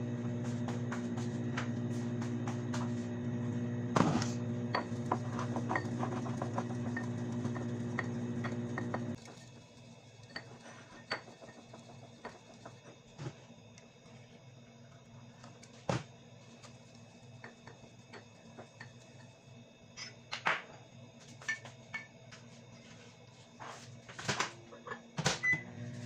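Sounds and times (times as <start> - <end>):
appliance hum: 0.0 - 26.0
cups and spoons clinking: 4.7 - 9.0, 10.3 - 11.6.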